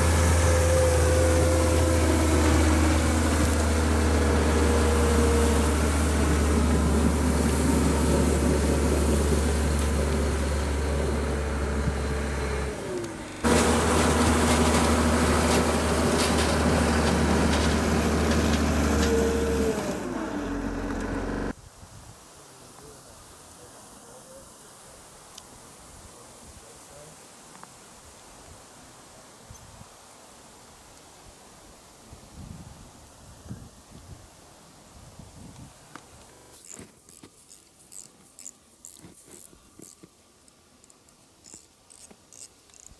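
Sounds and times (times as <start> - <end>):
vehicle engine running: 0.0 - 21.5.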